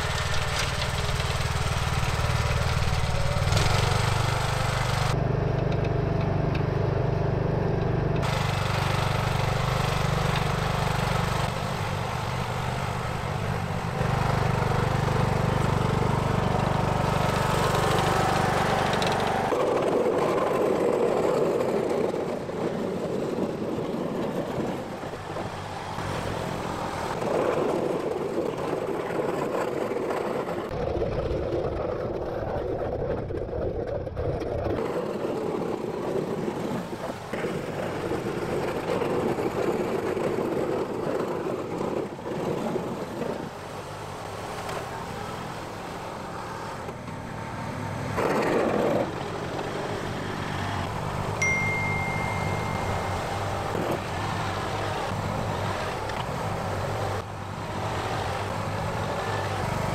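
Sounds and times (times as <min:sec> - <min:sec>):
lawn tractor engine running: 0:00.0 - 0:22.1.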